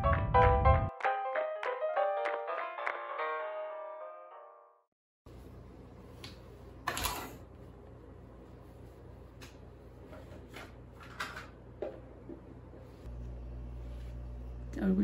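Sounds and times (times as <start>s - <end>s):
steady low hum: 11.7s - 15.0s.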